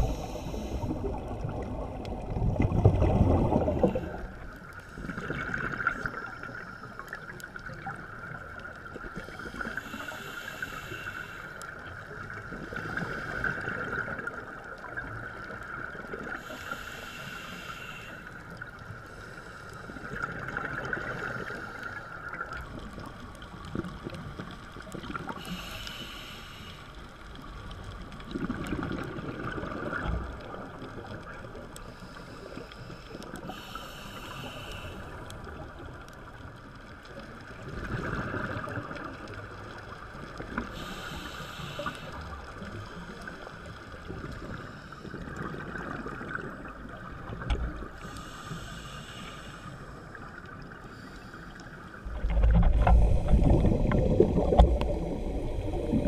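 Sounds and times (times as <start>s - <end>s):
scuba regulator breathing: 0.0s - 1.3s, 9.2s - 11.8s, 16.2s - 22.3s, 25.4s - 27.2s, 31.8s - 35.4s, 40.6s - 43.6s, 44.4s - 45.6s, 47.4s - 56.0s.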